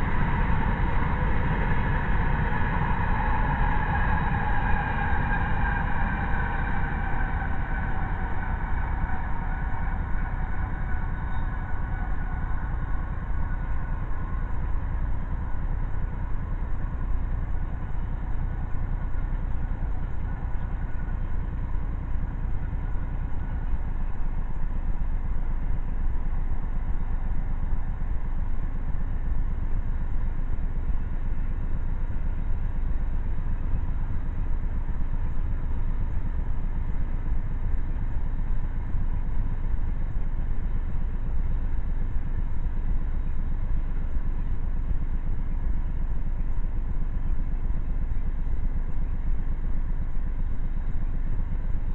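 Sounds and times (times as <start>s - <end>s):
freight train rumbling: 0.0s - 24.9s.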